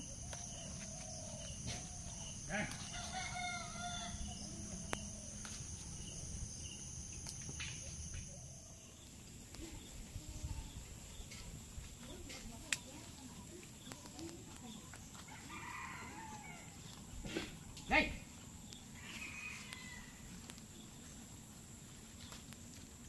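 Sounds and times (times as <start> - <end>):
rooster crowing: 1.8 - 4.8, 15.3 - 16.9, 19.0 - 20.4
leaf stems snapping: 12.2 - 12.9.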